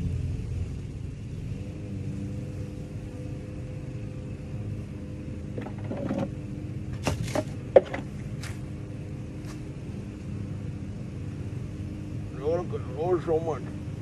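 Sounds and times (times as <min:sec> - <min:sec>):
honey bees buzzing: 0:01.1 - 0:14.0
knocks on wooden hive box: 0:07.0 - 0:08.1.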